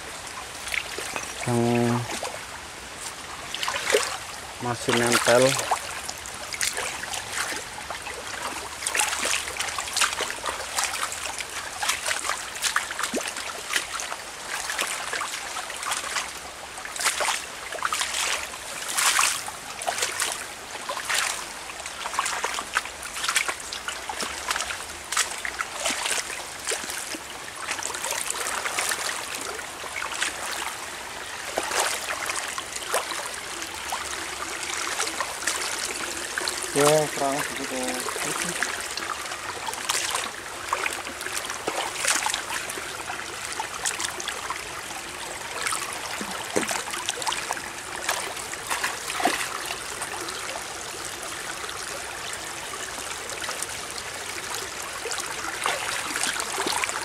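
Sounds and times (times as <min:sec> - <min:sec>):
stream trickling: 0:00.0 - 0:57.0
sharp splashes and knocks: 0:03.0 - 0:04.2, 0:08.4 - 0:16.3, 0:17.0 - 0:21.4, 0:22.0 - 0:29.4, 0:31.5 - 0:33.3, 0:39.7 - 0:42.7, 0:45.6 - 0:49.6.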